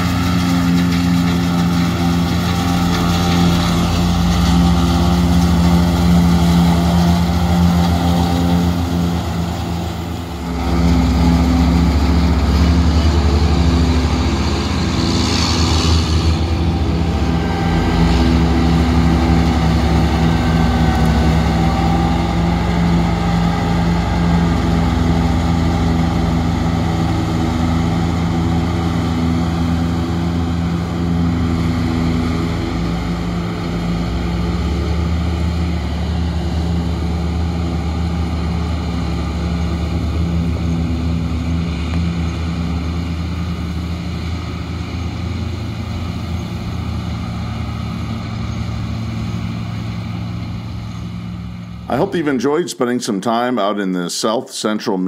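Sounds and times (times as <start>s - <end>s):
forage harvester engine under load: 0.0s - 53.5s.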